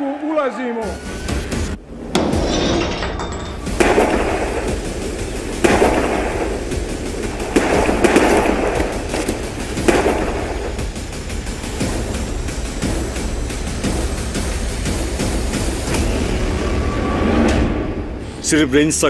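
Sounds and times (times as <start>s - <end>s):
loud impact hits: 2.0s - 13.0s
low musical drone: 3.6s - 19.0s.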